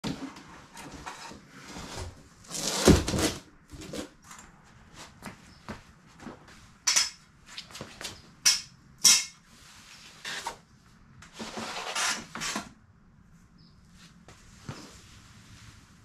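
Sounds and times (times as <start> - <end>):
scraping and rustling: 0.0 - 5.5, 9.4 - 12.7, 13.9 - 16.0
metal clanks on concrete: 6.9 - 7.2, 8.4 - 9.4.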